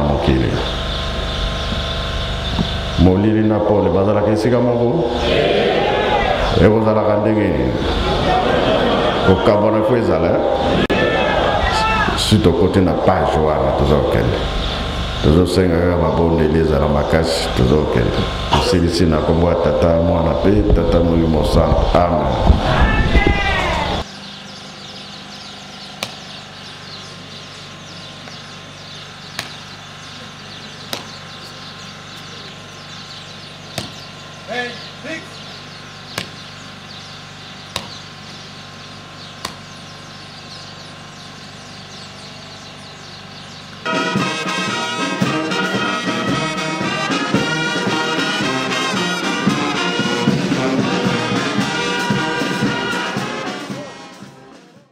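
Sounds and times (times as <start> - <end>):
faint high twittering: 0.0 - 43.9
steady low hum: 0.0 - 54.9
brass band playing: 43.9 - 54.8.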